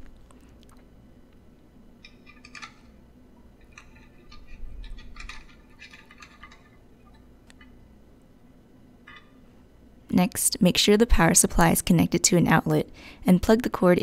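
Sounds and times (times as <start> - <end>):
antenna screwing clicks and rubbing: 3.6 - 7.7.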